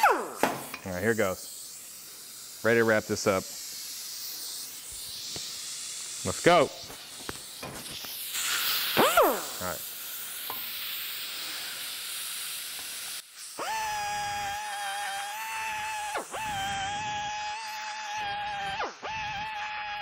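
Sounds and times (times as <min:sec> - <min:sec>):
die grinder whining: 0:13.6 - 0:20.0
grinder spinning down: 0:13.6 - 0:20.0.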